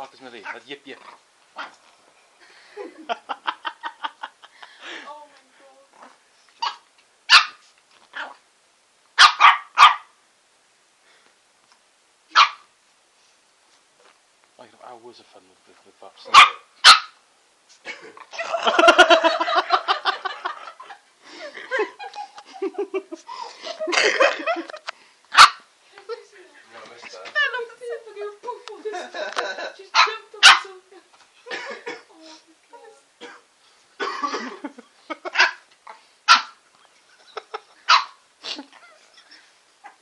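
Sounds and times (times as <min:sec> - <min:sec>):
puppy yipping: 0:12.3 - 0:12.7, 0:16.4 - 0:17.2, 0:37.9 - 0:38.2
person laughing: 0:17.9 - 0:24.8.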